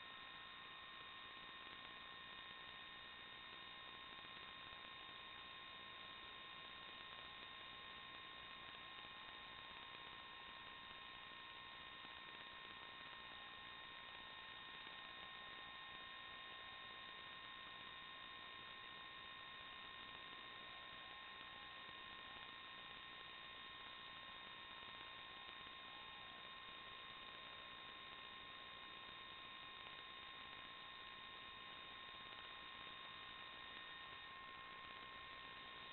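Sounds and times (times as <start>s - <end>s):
faint electronic hiss: 0.0s - 35.9s
thin steady tones: 0.0s - 35.9s.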